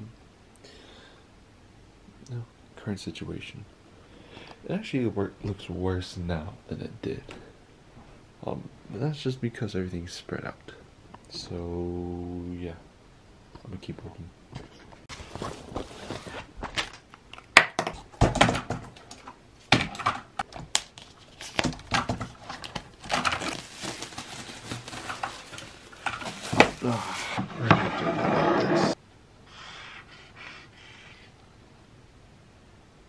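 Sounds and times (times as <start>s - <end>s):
rustling: 14.6s - 17.1s, 20.7s - 28.4s.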